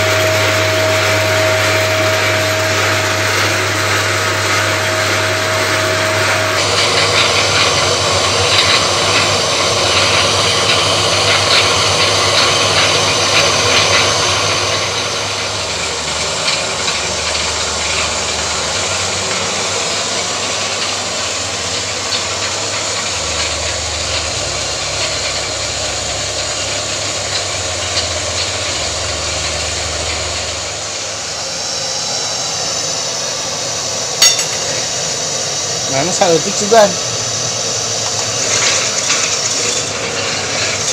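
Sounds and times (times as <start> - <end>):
plastic shredder motor running: 0.0 - 40.9.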